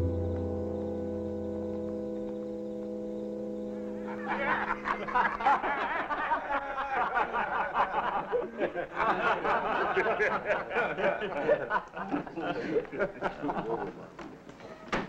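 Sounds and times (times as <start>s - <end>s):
held music chord: 0.0s - 6.5s
men laughing: 3.8s - 14.4s.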